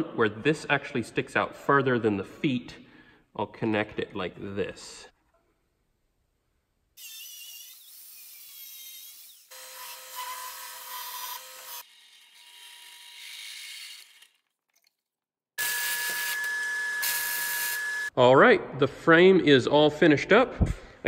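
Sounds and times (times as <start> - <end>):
angle grinder cutting steel: 7.0 - 14.4, 15.6 - 18.1
belt grinder grinding metal: 7.0 - 14.5, 15.6 - 18.1.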